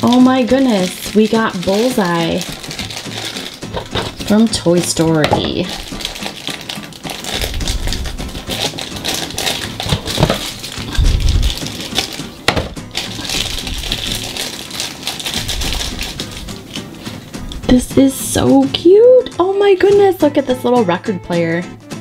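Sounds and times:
plastic wrapping crinkling: 0.0 - 17.9
dull knocks on table: 12.5 - 12.8.

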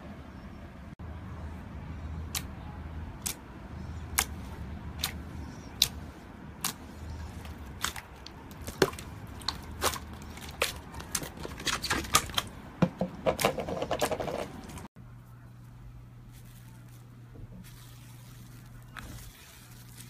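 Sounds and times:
slime squishing with wet pops: 4.1 - 12.5.

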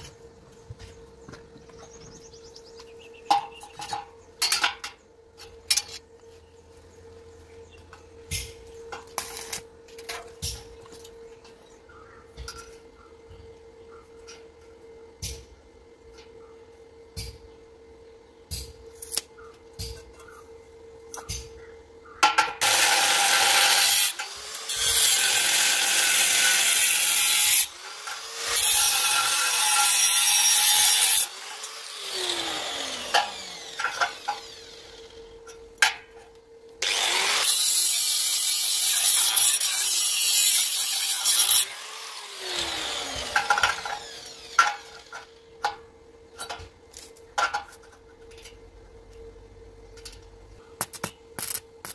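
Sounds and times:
angle grinder cutting steel: 22.6 - 35.2, 36.8 - 45.3.

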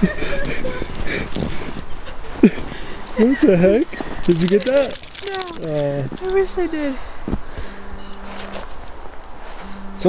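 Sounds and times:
footsteps crunching through snow: 0.2 - 10.0.

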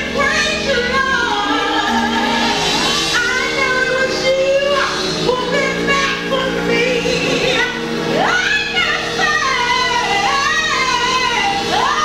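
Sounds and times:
musical accompaniment: 0.0 - 12.0
woman singing into a microphone: 0.0 - 12.0.

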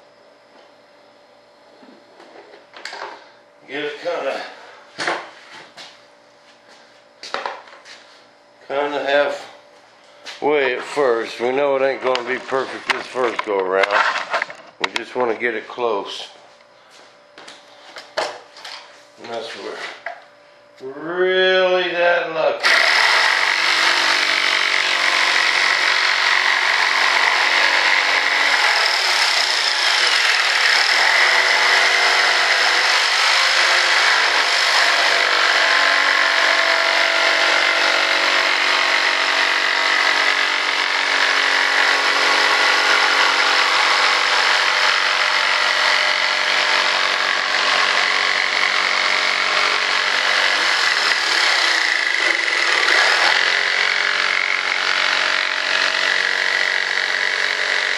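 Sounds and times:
electric jigsaw cutting board: 12.0 - 15.0, 22.6 - 57.9.

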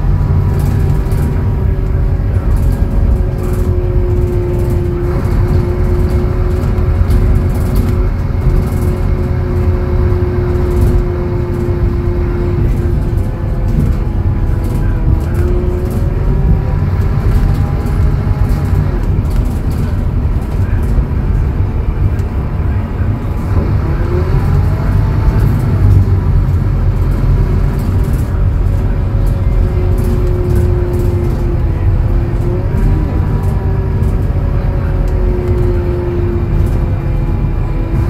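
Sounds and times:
bus diesel engine drone: 0.0 - 38.0.

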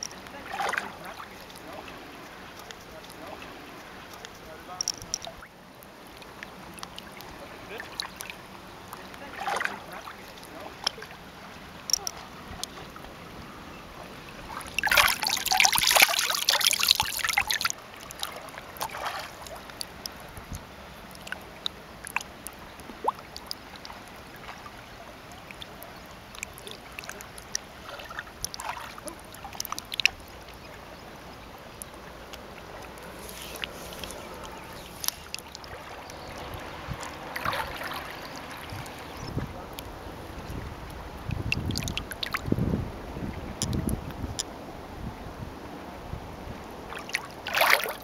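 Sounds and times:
water dripping: 0.0 - 44.5, 46.9 - 48.0
person splashing water: 14.4 - 20.2, 26.4 - 30.2, 33.0 - 39.2, 46.9 - 48.0.

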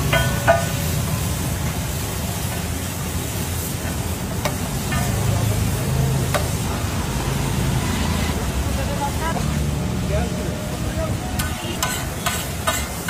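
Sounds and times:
ladle clinking on griddle: 0.0 - 1.3, 3.8 - 6.6, 11.4 - 13.0
food sizzling on a griddle: 0.0 - 13.0.

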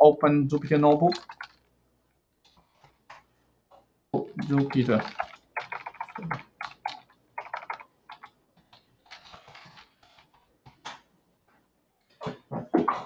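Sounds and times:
computer keyboard typing: 0.7 - 1.6, 4.4 - 10.2.

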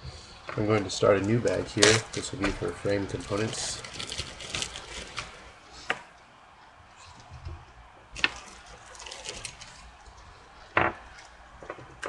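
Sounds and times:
plastic bag crinkling: 0.5 - 5.8, 8.1 - 12.0.

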